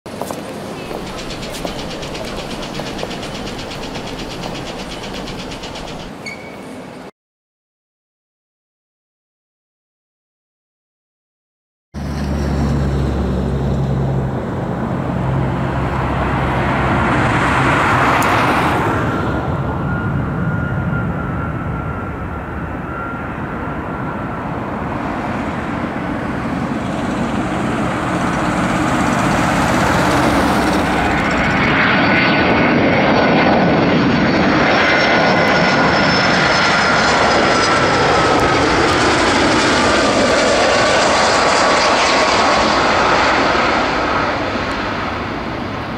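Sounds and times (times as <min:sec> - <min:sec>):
jet engine rumble: 0:00.1 - 0:06.3, 0:12.0 - 0:45.9
thin jet whine: 0:00.4 - 0:06.9, 0:19.3 - 0:45.9.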